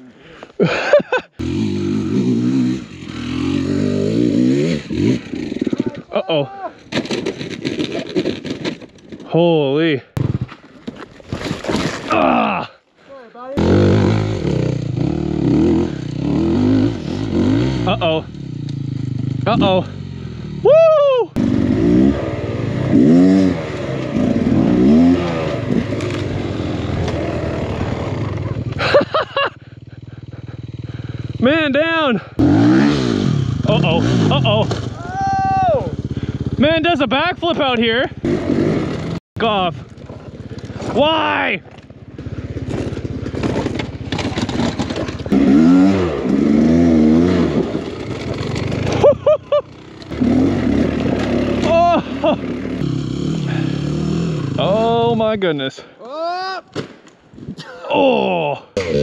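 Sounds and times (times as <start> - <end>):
dirt bike engine revving: 1.3 - 6.4, 13.6 - 20.7, 21.3 - 35.0, 35.6 - 55.3, 58.8 - 59.0
scraping and clattering: 6.8 - 9.3, 42.7 - 45.3.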